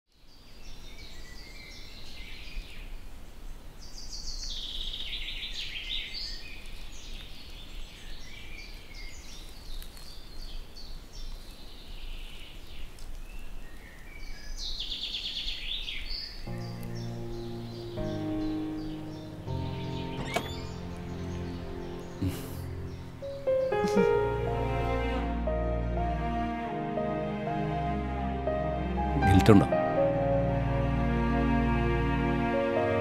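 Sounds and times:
birds calling and chirping: 0.3 - 24.7.

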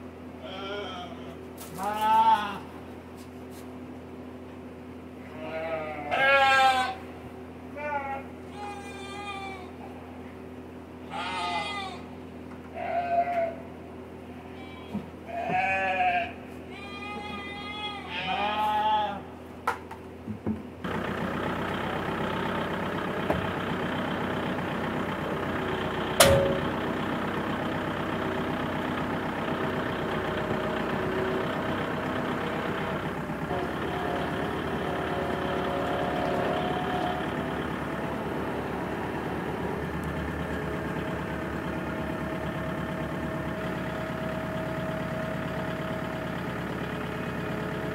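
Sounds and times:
lambs bleating: 0.4 - 2.7, 5.2 - 7.1, 7.7 - 9.8, 11.0 - 12.1, 12.7 - 13.7, 14.3 - 19.3
tractor engine running: 19.9 - 47.9
sharp knock: 26.2 - 26.7.

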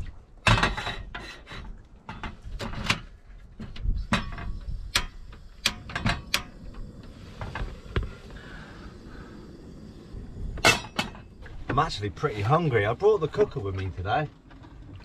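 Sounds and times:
stove igniter clicking: 4.8 - 6.9.

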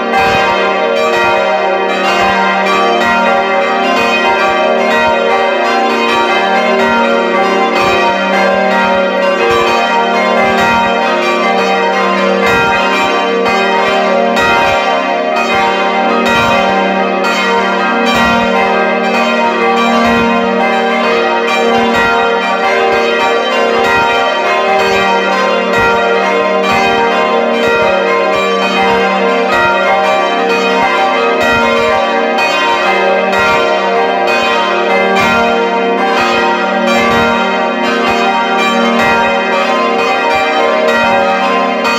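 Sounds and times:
church bells pealing: 0.0 - 41.9.

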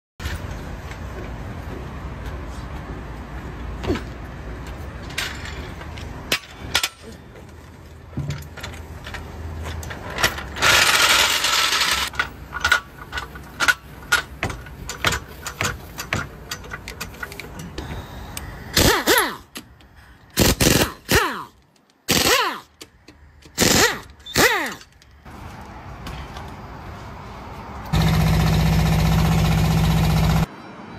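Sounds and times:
air impact wrench rattling: 9.9 - 17.8, 18.8 - 19.4, 20.3 - 21.5, 22.1 - 25.0
metal clicks and knocks: 12.1 - 17.8.

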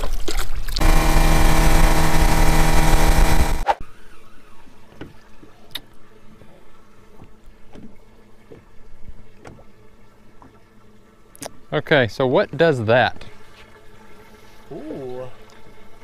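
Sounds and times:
wind: 0.0 - 1.0, 3.6 - 16.0
outboard motor running: 0.8 - 3.6.

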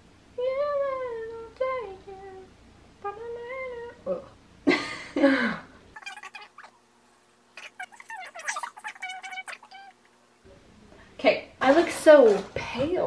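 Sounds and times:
wordless vocal calls sliding pitch: 6.0 - 6.8, 7.6 - 10.1.

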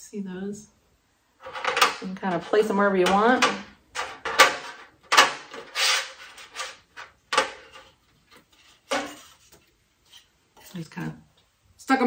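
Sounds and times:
metal pieces knocking on board: 1.4 - 7.9.

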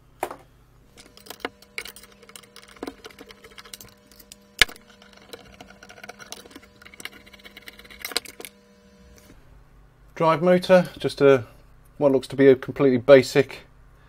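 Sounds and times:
plastic and metal parts clicking: 1.0 - 8.5.

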